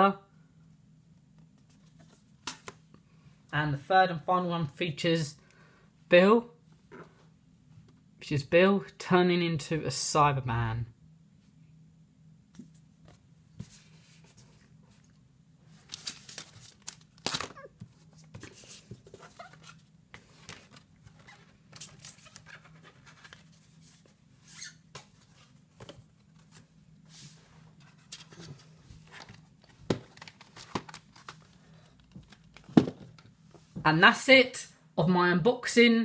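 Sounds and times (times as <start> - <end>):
low steady hum: 0.0 - 36.0
box handling rustles and clicks: 28.1 - 33.3.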